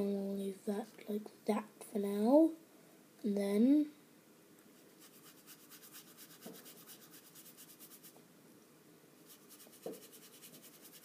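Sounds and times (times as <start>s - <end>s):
paintbrush strokes on paper: 4.8s - 8.2s, 9.2s - 11.0s.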